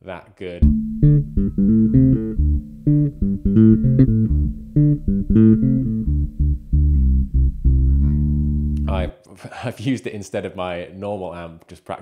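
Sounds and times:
electric bass plucked notes: 0.6s - 9.1s.

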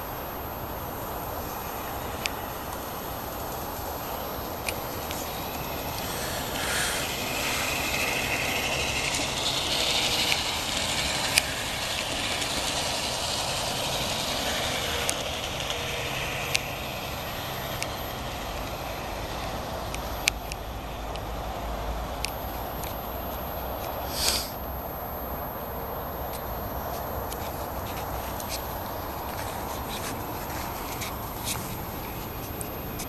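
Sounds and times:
model train rolling on track: 0.0s - 22.4s
sharp track clicks: 4.4s - 21.3s.

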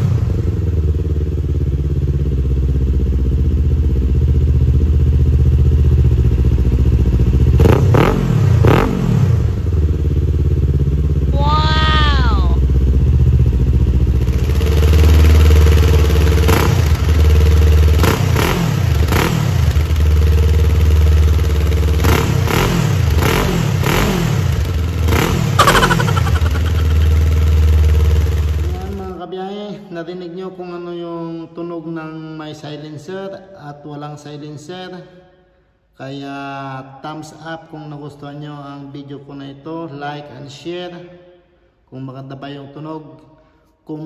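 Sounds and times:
motorcycle engine idling and revving: 0.0s - 29.2s.

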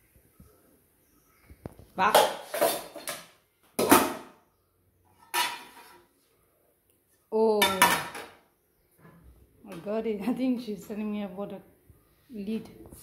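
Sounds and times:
pots and dishes clattering: 2.0s - 4.3s, 5.1s - 6.0s.

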